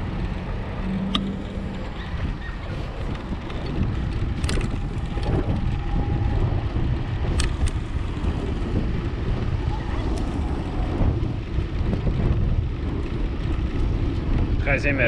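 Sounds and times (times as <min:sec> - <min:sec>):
wind rumbling on microphone: 0:00.0 - 0:15.0
sharp clicks: 0:07.3 - 0:07.8.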